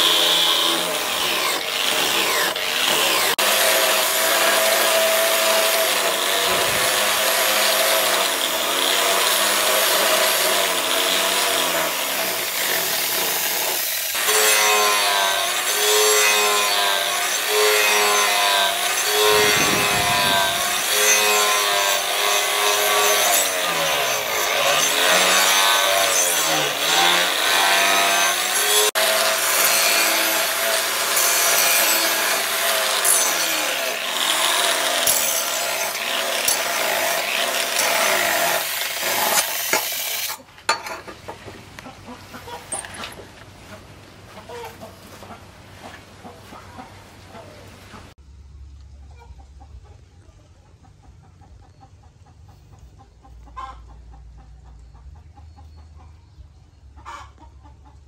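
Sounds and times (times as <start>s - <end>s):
angle grinder grinding steel: 0.0s - 41.1s, 42.3s - 43.3s.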